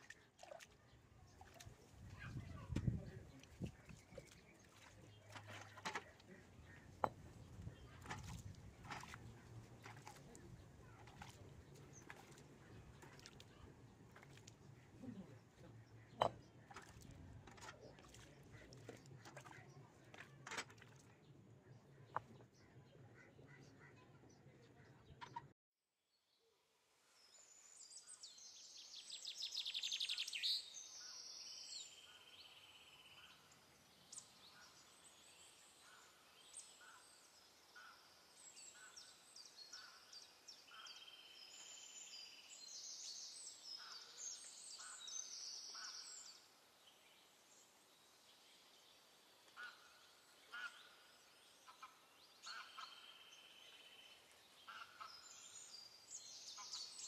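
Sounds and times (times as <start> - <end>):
birds chirping: 0.0 - 25.5.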